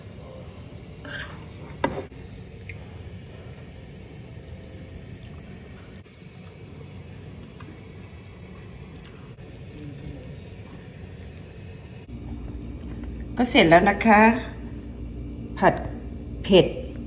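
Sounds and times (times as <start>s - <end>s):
wet food squishing in pan: 1.0s - 12.1s.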